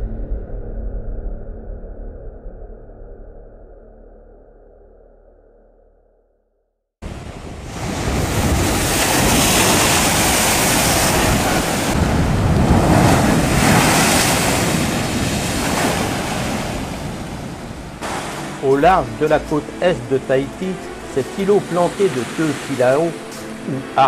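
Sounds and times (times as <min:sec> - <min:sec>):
waves crashing on rocky shore: 0:07.0 - 0:24.0.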